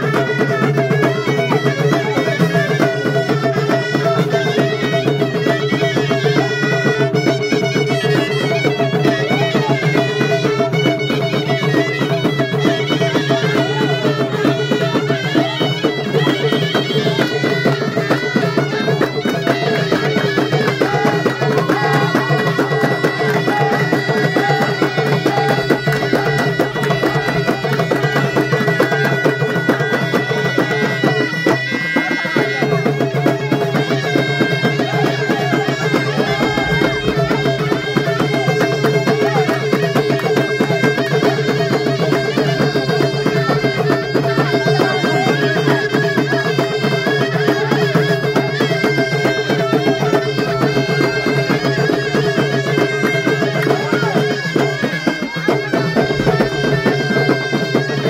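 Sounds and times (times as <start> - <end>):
frame drums beating: 0.0 - 58.0
reedy shawm melody: 0.0 - 58.0.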